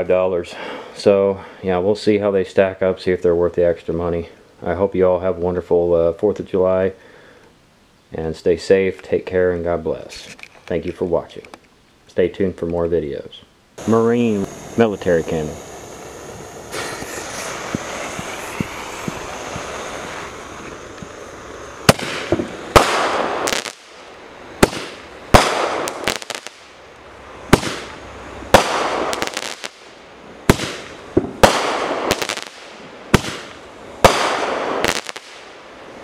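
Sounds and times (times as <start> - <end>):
firework bangs with crackling: 13.8 - 26.8, 27.5 - 35.6
firework hissing: 13.8 - 36.0.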